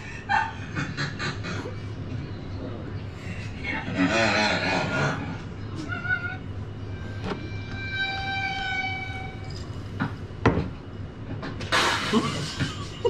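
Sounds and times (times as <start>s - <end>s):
loud burst of hiss: 11.7s - 12.4s.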